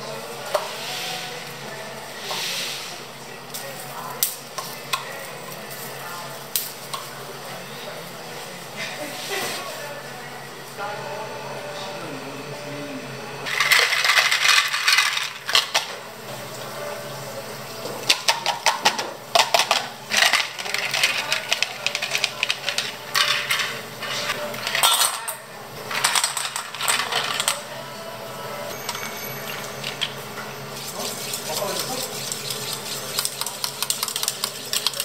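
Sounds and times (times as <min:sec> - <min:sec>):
ice cubes clattering into cup: 0:13.5 - 0:15.9.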